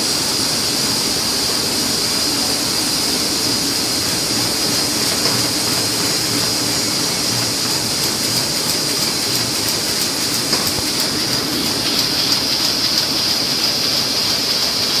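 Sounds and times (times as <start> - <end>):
high hiss: 0.0 - 15.0
printing press clattering: 0.0 - 15.0
sheet feeder ticking: 4.3 - 15.0.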